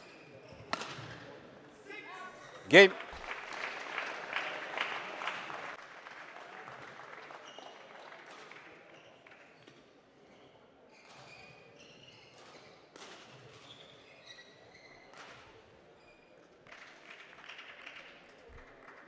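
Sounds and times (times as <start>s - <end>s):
court shoes squeaking on floor: 0.0s - 1.1s, 10.3s - 12.9s, 13.5s - 15.2s
applause: 2.7s - 9.6s, 16.7s - 19.0s.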